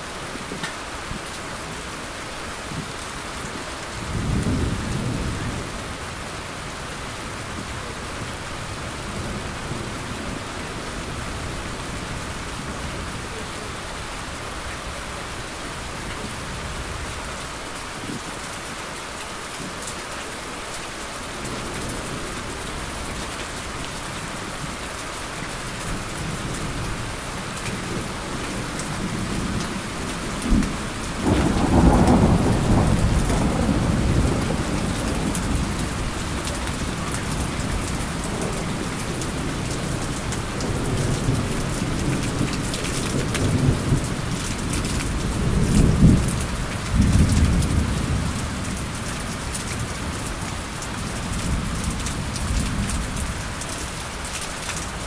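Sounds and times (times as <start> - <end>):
steady rain falling: 0.0 - 55.0
thunder clap and rumble: 4.0 - 5.9, 25.9 - 50.6.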